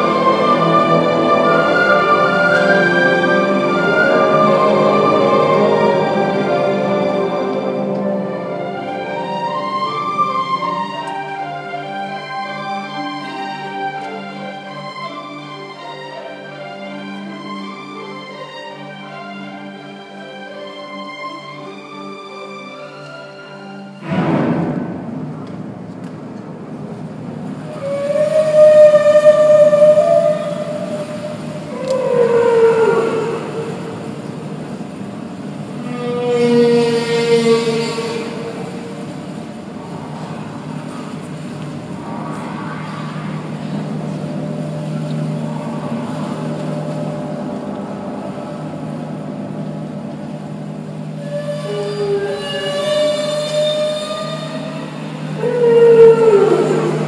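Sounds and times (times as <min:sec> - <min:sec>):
whale song moans: 0:00.0 - 0:11.0, 0:27.6 - 0:49.8, 0:50.9 - 0:57.0
orchestra strings sustained low: 0:00.0 - 0:57.0.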